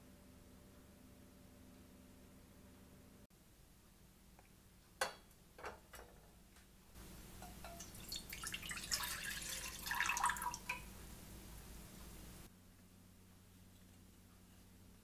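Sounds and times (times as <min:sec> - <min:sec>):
milk pouring into saucepan: 0:07.4 - 0:10.9.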